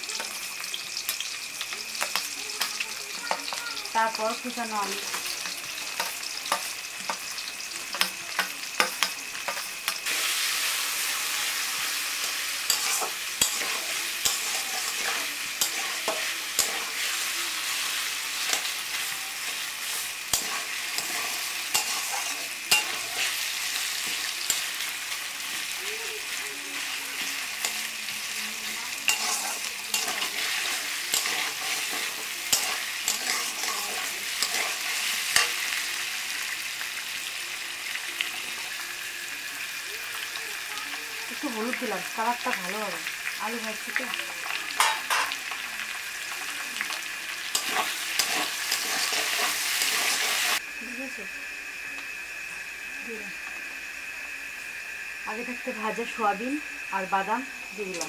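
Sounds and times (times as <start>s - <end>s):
food sizzling in hot oil: 0.0s - 58.0s
metal spatula clinking on pan: 12.7s - 16.9s, 20.3s - 23.3s, 29.1s - 34.8s.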